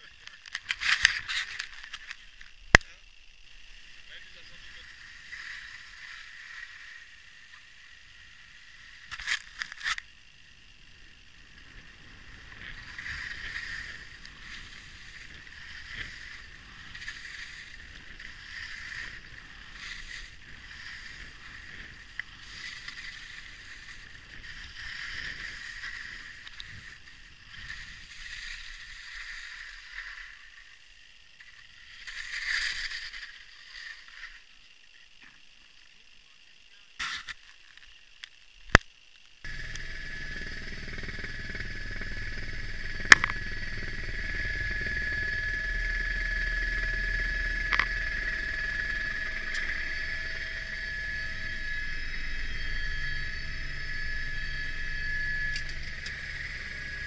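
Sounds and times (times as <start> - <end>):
skis scraping over snow: 12.7 - 27.0.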